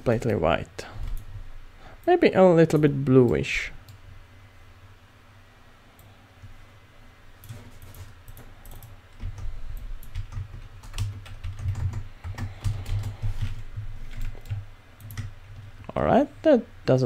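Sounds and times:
keyboard typing clicks: 0:07.4 - 0:13.5, 0:14.1 - 0:15.7.

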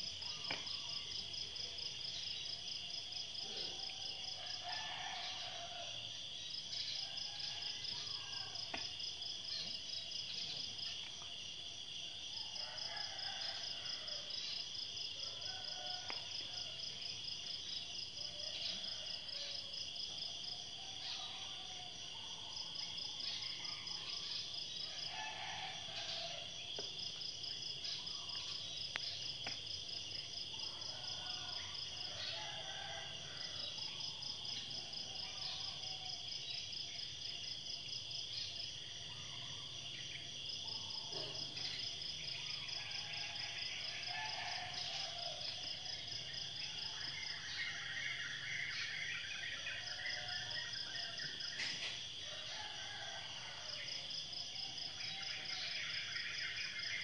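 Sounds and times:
insects chirping drone: 0:00.0 - 0:57.0.

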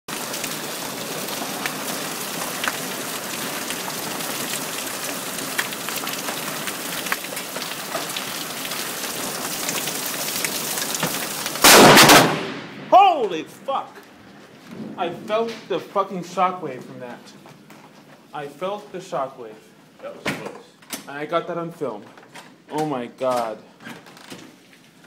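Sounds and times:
hailstones ticking: 0:00.1 - 0:12.2
heavy rain pouring: 0:00.1 - 0:17.5
lightning strike crack: 0:11.0 - 0:13.6.

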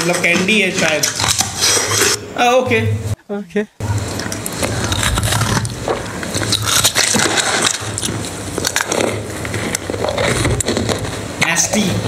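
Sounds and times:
low steady hum: 0:00.0 - 0:12.0
crunching of hard treat: 0:04.0 - 0:11.2.

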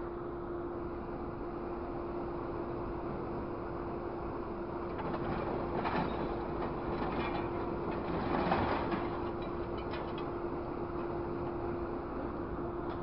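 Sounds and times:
truck engine and hydraulics hum: 0:00.0 - 0:13.0
scrap metal clanking and scraping: 0:05.0 - 0:10.3.

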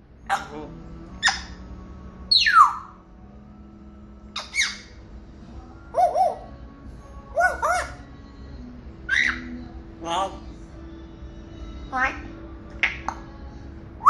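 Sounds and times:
parrot squawk: 0:00.2 - 0:01.7, 0:02.3 - 0:03.0, 0:04.4 - 0:05.0, 0:07.3 - 0:08.0, 0:09.1 - 0:09.6.

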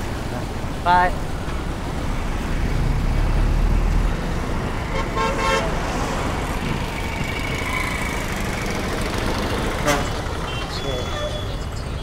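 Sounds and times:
road traffic passing: 0:00.0 - 0:12.0
vehicle horn: 0:04.9 - 0:05.8, 0:09.8 - 0:11.6
heavy engine rumble: 0:06.2 - 0:12.0.

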